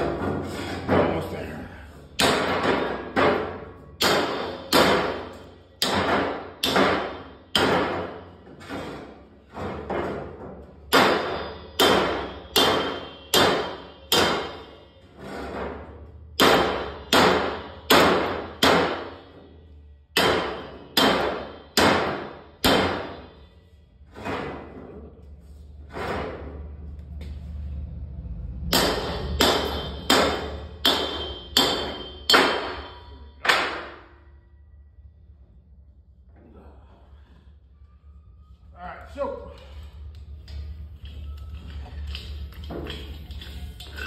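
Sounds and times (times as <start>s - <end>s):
hammer striking hollow metal tank: 2.2s - 9.0s, 9.6s - 15.0s, 15.6s - 19.5s, 20.1s - 23.4s, 28.7s - 34.2s.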